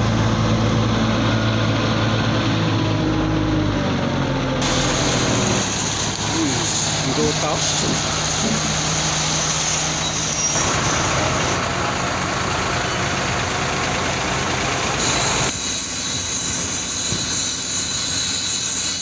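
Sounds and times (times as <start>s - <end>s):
truck engine rumble: 0.0s - 19.0s.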